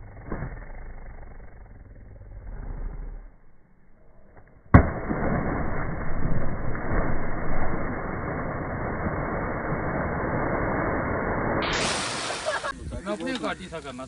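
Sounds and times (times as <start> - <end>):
loud splash into river: 4.7 - 12.8
churning water rushing: 11.6 - 12.7.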